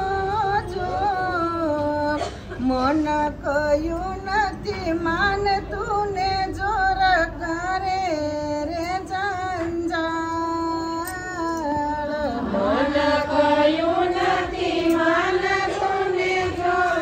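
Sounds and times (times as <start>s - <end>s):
woman singing slow melody: 0.0s - 13.4s.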